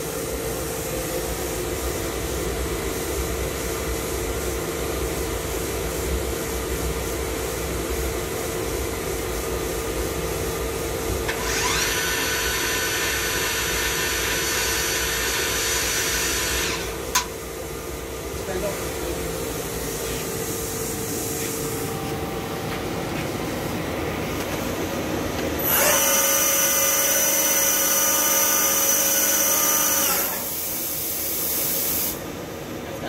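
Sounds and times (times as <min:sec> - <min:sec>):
lathe humming: 0:11.3 - 0:17.3, 0:25.6 - 0:30.6.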